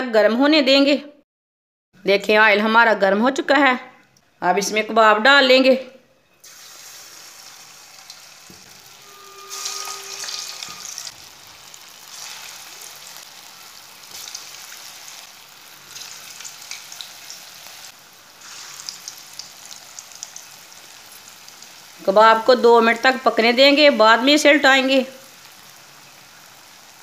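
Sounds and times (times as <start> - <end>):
food deep-frying in oil: 6.4 - 27.0.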